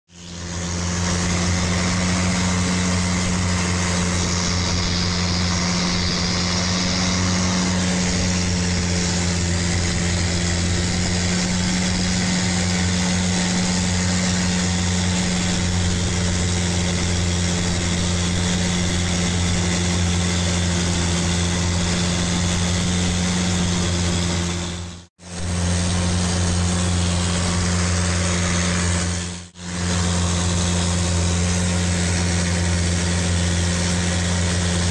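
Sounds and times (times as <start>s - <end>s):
boat engine droning: 0.1s - 34.9s.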